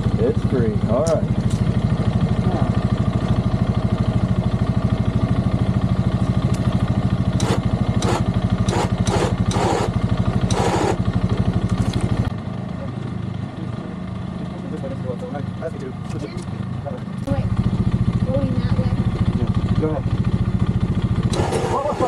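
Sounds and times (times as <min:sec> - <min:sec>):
atv engine running: 0:00.0 - 0:22.0
short bursts of noise: 0:07.4 - 0:11.0, 0:21.3 - 0:22.0.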